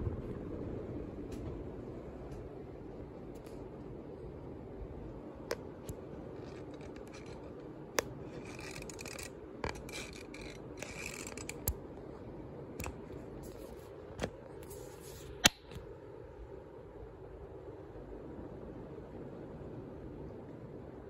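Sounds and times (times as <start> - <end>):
ceiling fan humming: 0.0 - 21.0
scratchy rubbing: 5.8 - 11.7, 13.4 - 14.0, 14.6 - 15.5.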